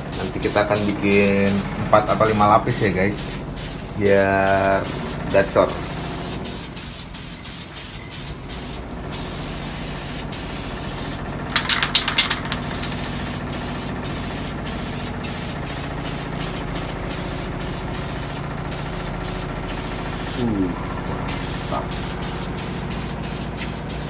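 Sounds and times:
spray paint can hissing: 0.0 - 24.0
steady low hum: 0.0 - 24.0.

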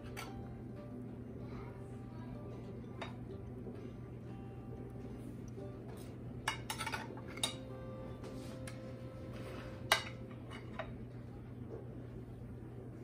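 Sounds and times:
knife clinking on glass dishes: 6.5 - 7.7.

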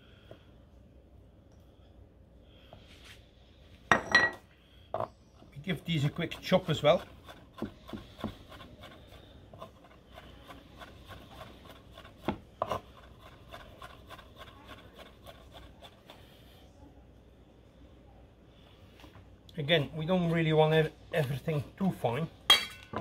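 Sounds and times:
knife chopping on wooden board: 6.4 - 8.9, 10.4 - 15.7.

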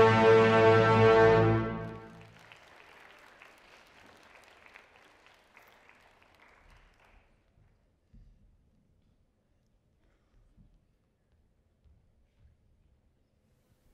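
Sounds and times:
audience applause: 1.0 - 7.4.

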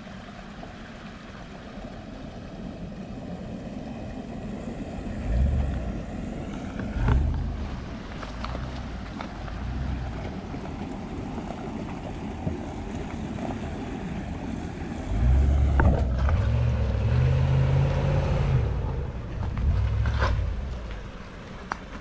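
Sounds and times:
creek trickling over rocks: 0.0 - 22.0
suv engine running at low revs: 0.0 - 22.0
tyres splashing through water: 0.0 - 22.0.

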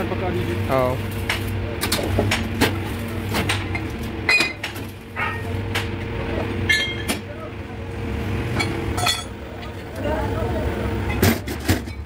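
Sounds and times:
steady machine hum: 0.0 - 12.0
metal parts clanking: 8.6 - 9.4.

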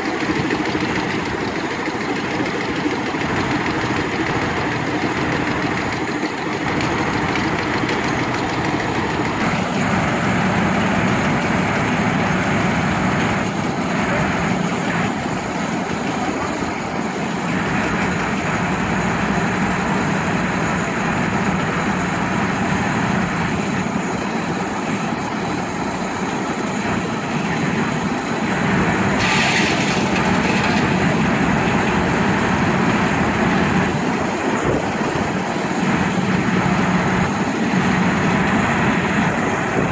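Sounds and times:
sawmill engine and circular saw: 0.0 - 39.9
brief high hiss: 29.2 - 30.9.

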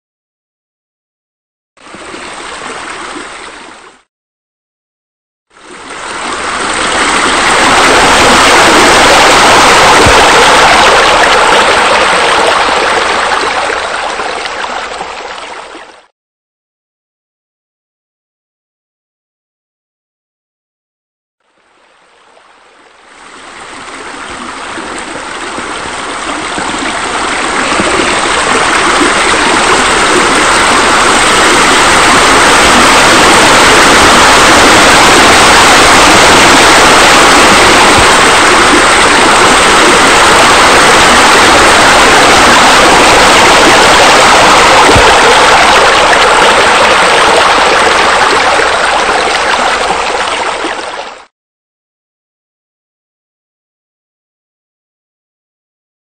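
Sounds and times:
rushing splashing water: 1.8 - 4.1, 5.5 - 16.1, 23.1 - 51.3.

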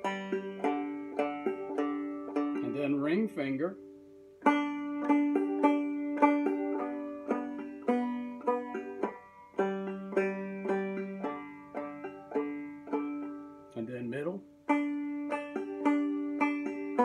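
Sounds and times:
banjo plucked notes: 0.0 - 17.0.

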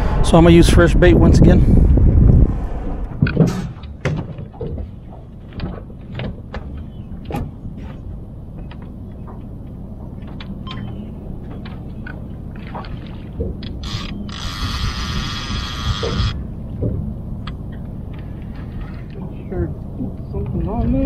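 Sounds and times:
low hum: 0.0 - 21.0
fishing gear clicking and knocking: 10.3 - 19.2.

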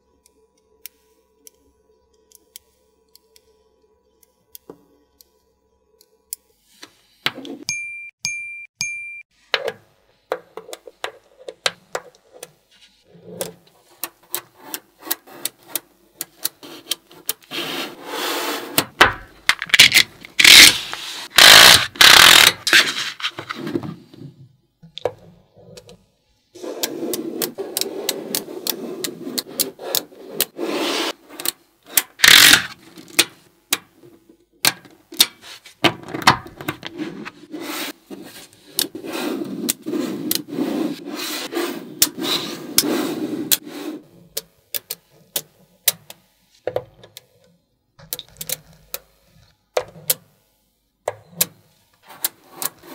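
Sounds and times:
magnetic balls rubbing and scraping: 10.7 - 24.4, 26.6 - 34.3, 36.6 - 44.4
magnetic balls clicking: 32.0 - 33.9.

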